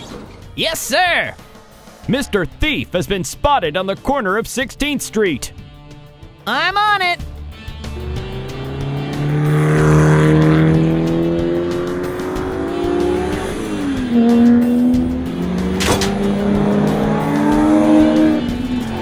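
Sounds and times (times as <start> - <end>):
cartoon engine accelerating: 7.9 - 19.0
sharp click: 15.7 - 16.2.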